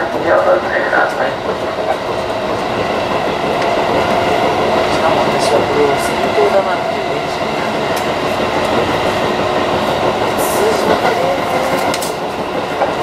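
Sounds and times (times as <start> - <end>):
electric train rolling rumble: 0.0 - 13.0
wheels clicking over rails: 0.0 - 13.0.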